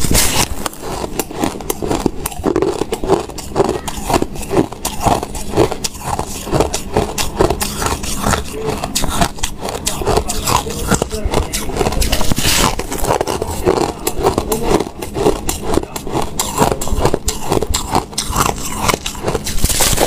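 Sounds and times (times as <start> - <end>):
chewing crunchy ice: 0.0 - 20.0.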